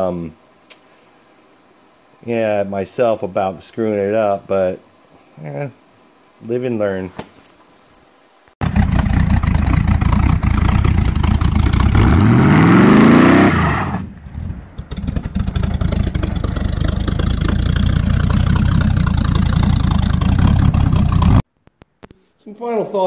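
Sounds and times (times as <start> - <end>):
pickup engine revving: 8.6 - 21.4.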